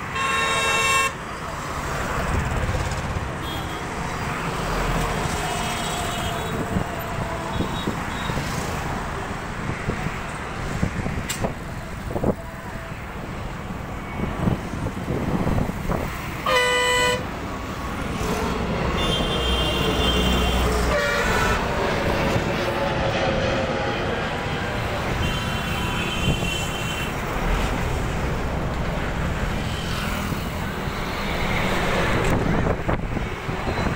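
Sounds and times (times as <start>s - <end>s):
road traffic rumble: 0.0s - 33.9s
vehicle horn honking: 0.2s - 1.2s, 3.4s - 3.8s, 16.4s - 17.2s, 19.0s - 21.6s, 25.2s - 27.2s
jet engines roaring: 1.0s - 33.9s.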